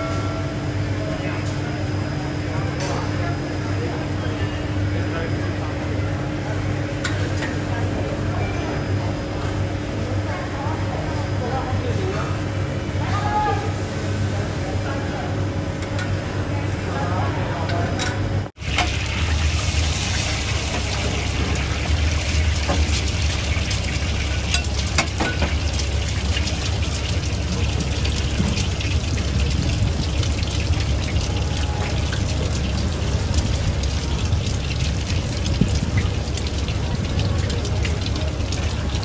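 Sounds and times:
eggs sizzling in hot oil: 18.6 - 39.0
oil spattering crackles: 18.6 - 39.0.

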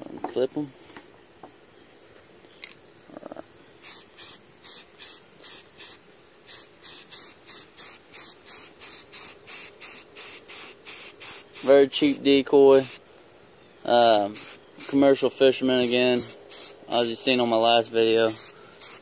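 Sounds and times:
spray paint can hissing: 3.8 - 13.0, 14.0 - 19.0.

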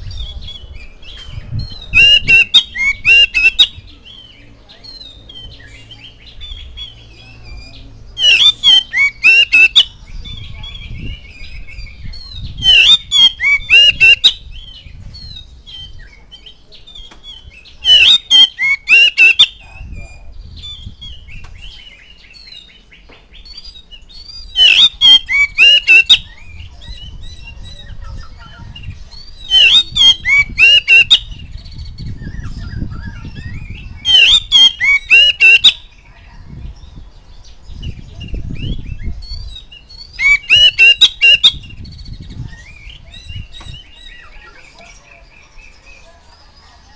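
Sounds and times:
bird singing harsh phrases: 0.0 - 46.9
bird warbling and whistling: 1.6 - 3.9, 8.2 - 16.0, 17.8 - 20.9, 24.4 - 35.9, 38.2 - 44.8.

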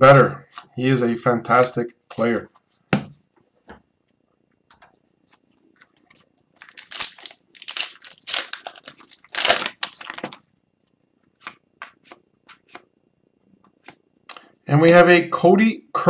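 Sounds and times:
foil wrapper tearing and crinkling: 6.2 - 10.4.

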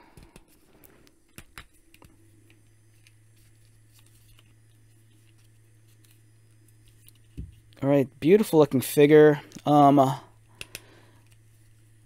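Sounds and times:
low steady hum: 0.0 - 12.0
plastic toy handling noise: 0.2 - 7.8.

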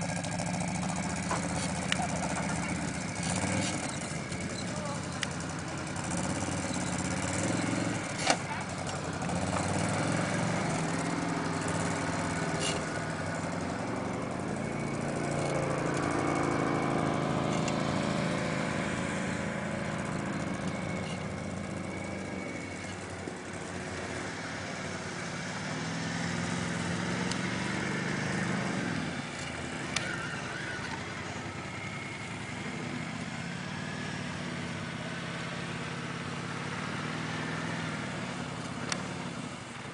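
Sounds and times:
quad bike engines: 0.0 - 39.9.

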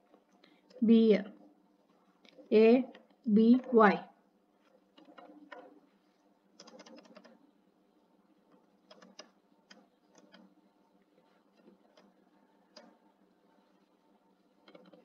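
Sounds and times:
faint keyboard keystrokes: 6.6 - 7.4, 8.5 - 10.5, 14.6 - 15.0.

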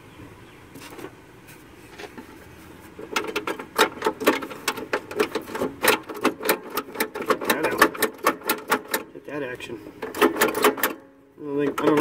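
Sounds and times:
faint handling noise: 0.7 - 11.0
metal engine parts clicking: 3.0 - 9.1, 9.9 - 12.0.

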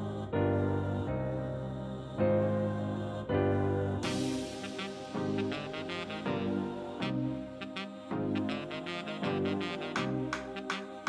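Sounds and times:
background music with light beat: 4.0 - 11.0.

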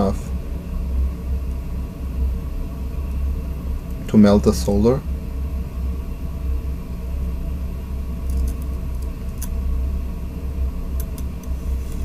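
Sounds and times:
constant hum: 0.0 - 12.0.

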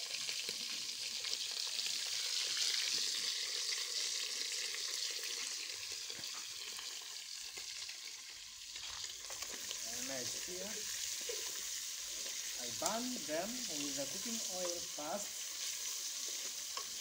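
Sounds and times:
food frying in oil: 0.0 - 17.0.

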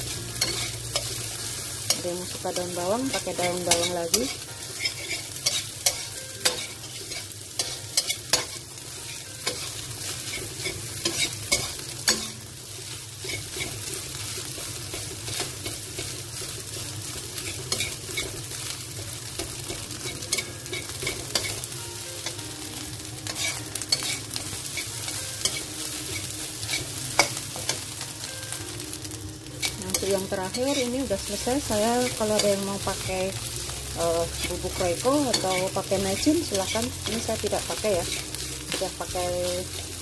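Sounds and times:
rice sizzling in a wok: 0.0 - 40.0
metal spatula scraping pan: 3.1 - 8.6.

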